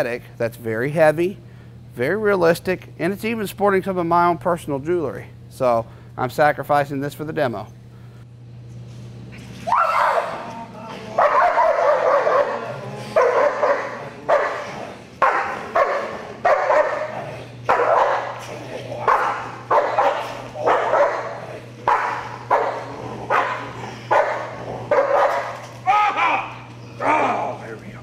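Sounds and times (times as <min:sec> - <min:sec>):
dog barking: 0:11.2 - 0:18.4, 0:19.0 - 0:25.6.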